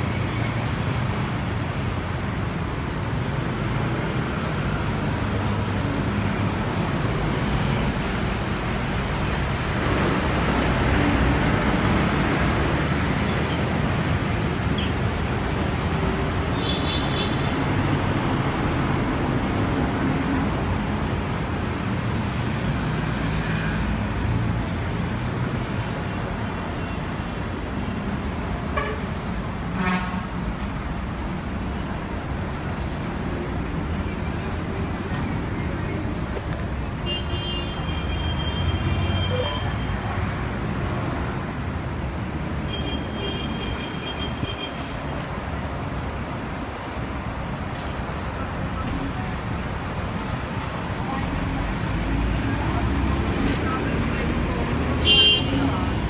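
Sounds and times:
traffic rumble: 0:00.0 - 0:56.0.

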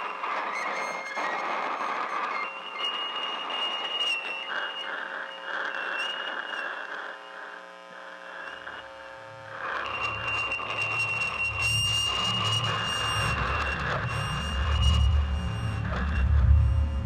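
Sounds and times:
buzzing drone: 0:02.0 - 0:17.0
high steady electronic tone: 0:08.4 - 0:17.0
low pulsing bass: 0:13.2 - 0:17.0.

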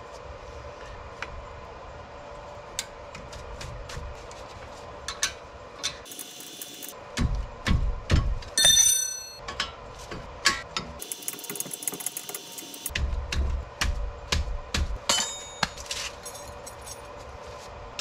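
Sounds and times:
ringing metallic clink: 0:08.6 - 0:09.4, 0:15.1 - 0:16.5.

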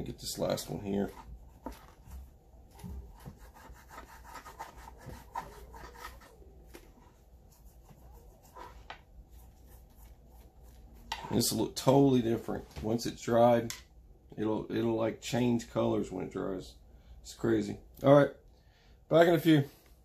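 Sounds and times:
dauber rubbing on leather: 0:00.4 - 0:11.6.

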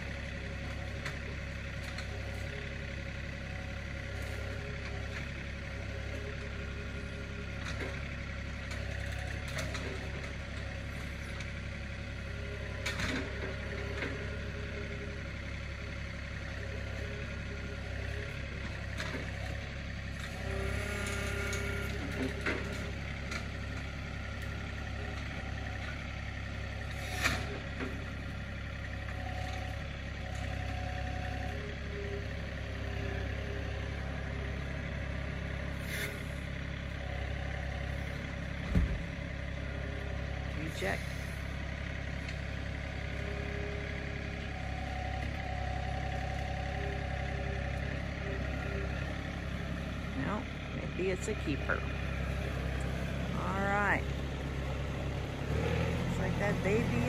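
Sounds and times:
tractor diesel engine running: 0:00.0 - 0:57.0
heavy thump: 0:38.7 - 0:39.0.

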